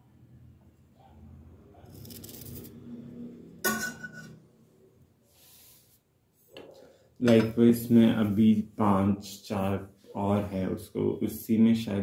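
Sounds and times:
knife scraping and cutting fruit: 1.8 - 2.8
knife clinking on steel plate: 3.7 - 4.4.

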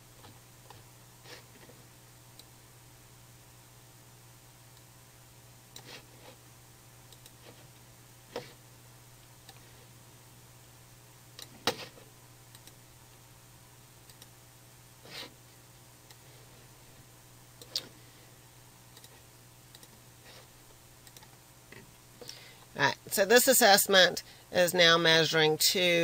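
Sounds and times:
faint low hum: 0.0 - 26.0
computer mouse clicking: 7.1 - 7.4, 12.5 - 12.8, 14.0 - 14.3, 18.9 - 20.0, 21.0 - 21.4.

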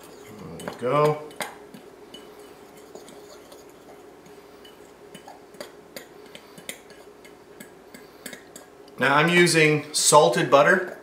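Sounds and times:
fork scraping flour in bowl: 0.0 - 1.5, 2.1 - 8.7.

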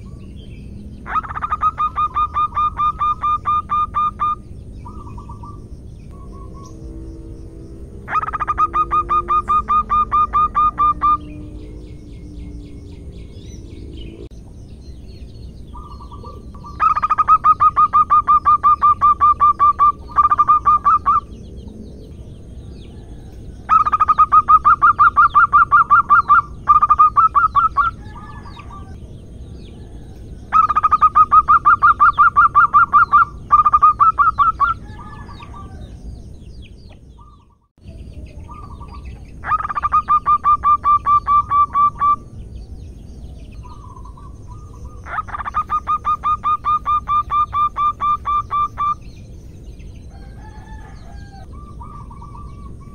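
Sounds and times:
dove cooing: 0.0 - 13.4, 15.8 - 21.4, 22.9 - 29.0, 29.8 - 35.9, 38.4 - 42.2, 43.6 - 49.0.

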